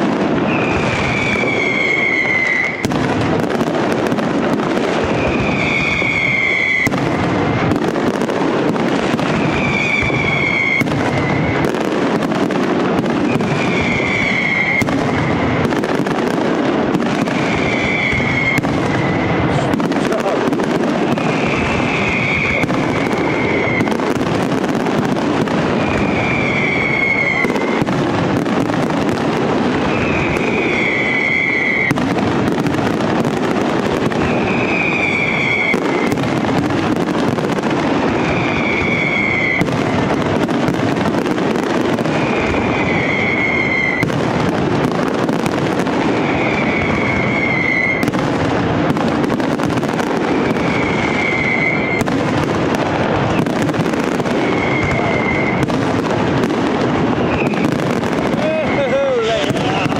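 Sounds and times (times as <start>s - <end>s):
fireworks crackling and popping: 0.0s - 59.9s
high falling whistle: 0.5s - 2.9s, 5.2s - 6.9s, 9.5s - 11.6s, 13.4s - 15.2s, 17.4s - 19.2s, 25.8s - 27.7s, 29.9s - 32.0s, 34.2s - 35.8s, 46.2s - 48.0s, 50.6s - 52.0s.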